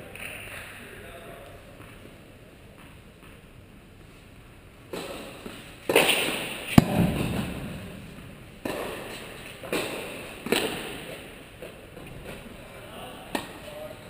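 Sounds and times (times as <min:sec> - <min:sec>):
tennis ball hit with rackets: 0:04.9 - 0:11.1.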